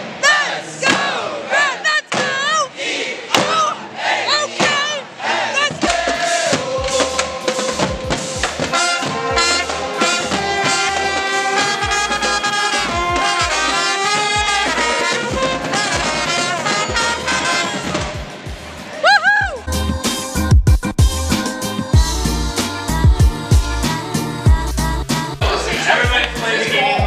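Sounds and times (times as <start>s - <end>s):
brass horns playing: 5.5s - 18.6s, 22.0s - 27.0s
marching snare and tenor drums: 5.7s - 18.4s.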